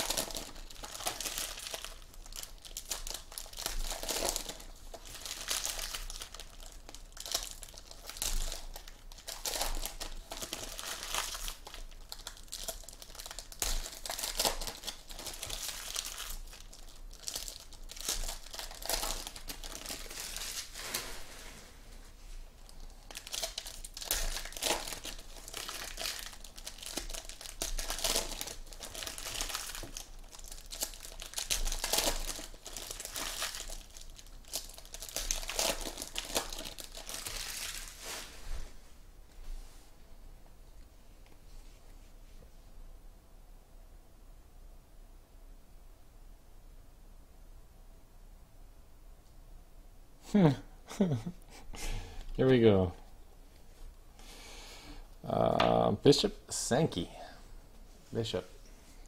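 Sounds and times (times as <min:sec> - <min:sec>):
foil wrappers crinkling and tearing: 0:00.0 - 0:21.4, 0:22.6 - 0:38.3.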